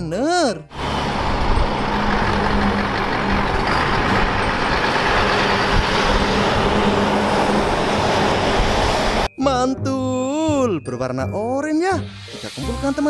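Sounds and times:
diesel truck engine hum: 0.6s - 9.3s
tyre and road noise: 0.7s - 9.3s.

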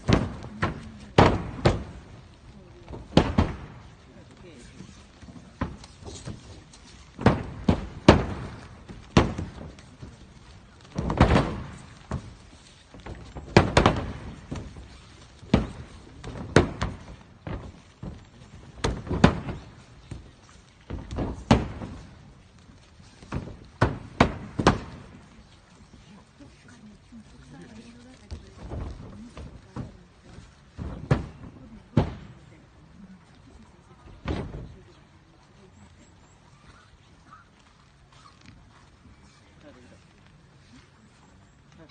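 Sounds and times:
bodies thudding on padded mats: 5.3s - 25.3s.

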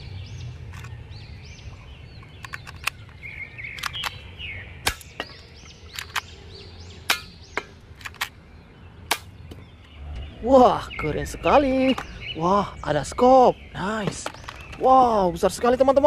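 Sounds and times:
toy pistol loading: 2.4s - 4.2s, 5.9s - 6.3s, 8.0s - 8.4s
toy pistol shots snapping: 4.8s - 5.2s.

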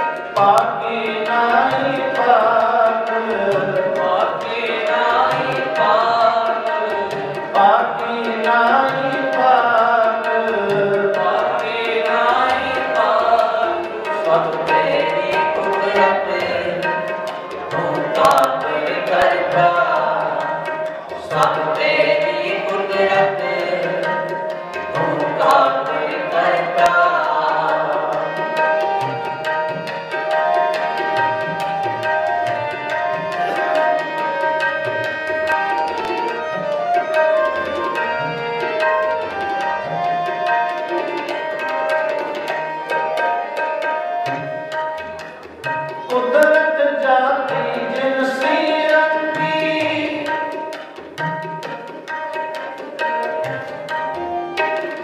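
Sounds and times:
harmoniums: 0.0s - 55.0s
tabla rhythm: 0.0s - 55.0s
men singing a hymn: 0.4s - 20.7s, 21.3s - 29.0s, 46.1s - 50.5s.

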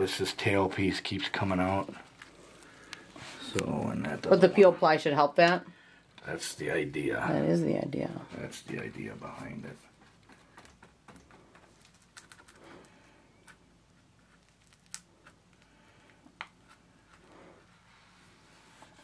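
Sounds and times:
faint clicks and taps: 9.8s - 12.6s.

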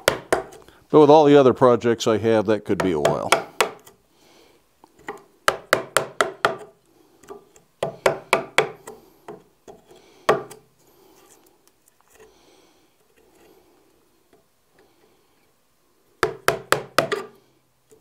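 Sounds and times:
chisel tapping wood: 0.0s - 0.6s, 2.8s - 3.9s, 5.0s - 6.7s, 7.3s - 10.6s, 16.2s - 17.3s.

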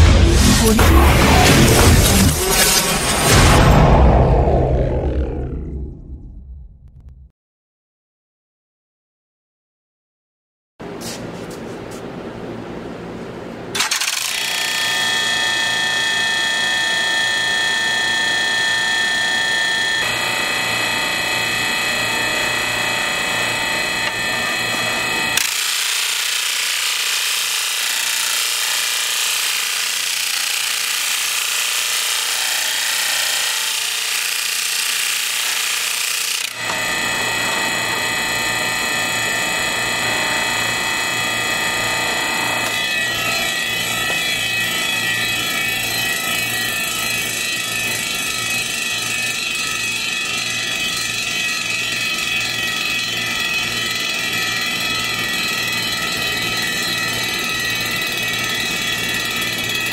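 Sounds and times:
electric motor humming and whining: 13.7s - 59.9s
disc sander grinding steel: 14.3s - 59.9s.

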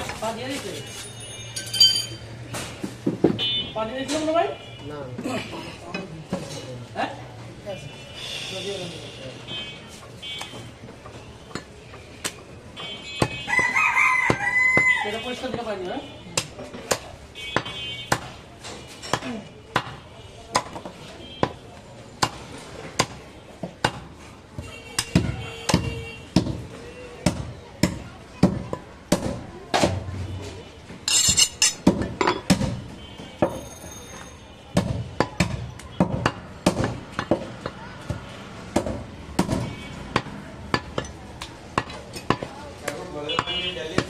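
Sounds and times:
cleaver chopping meat on wood: 13.2s - 15.7s, 16.3s - 18.4s, 19.1s - 21.6s, 22.2s - 24.2s, 25.0s - 30.1s, 31.8s - 33.6s, 34.7s - 42.6s, 43.4s - 44.0s.

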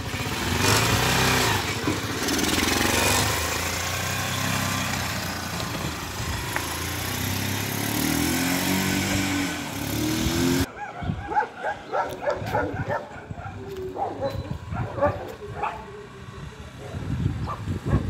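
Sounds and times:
quad engine revving: 0.0s - 10.7s.

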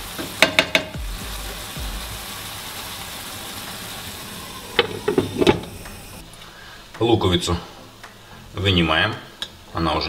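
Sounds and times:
frying pan ringing: 0.0s - 6.2s
sauerkraut sizzling in pan: 0.0s - 6.9s
wooden spatula knocking pan rim: 0.3s - 1.0s.

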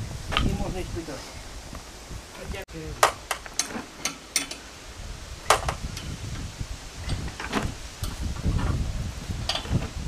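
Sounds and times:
wrench clicking on metal bolts: 3.3s - 4.6s.

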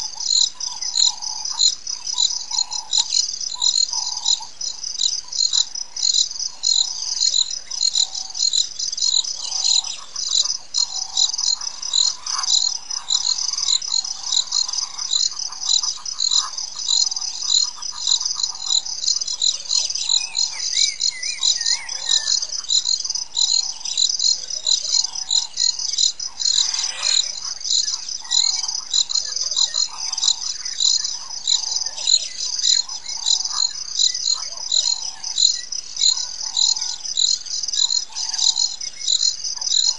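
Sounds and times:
insect chorus pulsing: 0.0s - 39.9s
repeated chirping calls: 0.0s - 39.9s
warbling birdsong: 0.0s - 39.9s.

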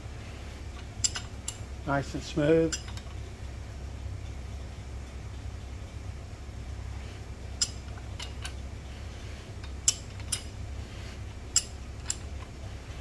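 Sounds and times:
steady low hum: 0.0s - 13.0s
wrench clinking on metal: 0.8s - 1.6s, 2.6s - 3.2s, 7.6s - 8.6s, 11.5s - 12.3s.

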